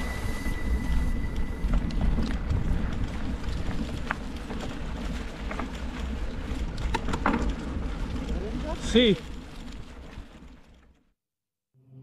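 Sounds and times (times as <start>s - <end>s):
wind rumbling on microphone: 0.0s - 10.9s
bike clicks and knocks: 1.7s - 10.9s.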